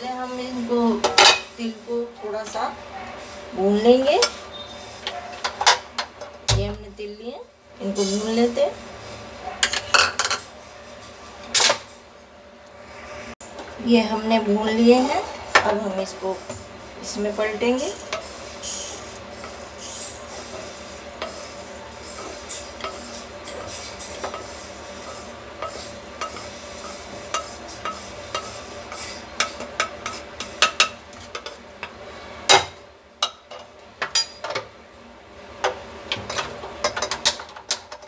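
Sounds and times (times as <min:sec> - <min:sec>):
spatula scraping seeds in a wok: 0:14.8 - 0:31.7.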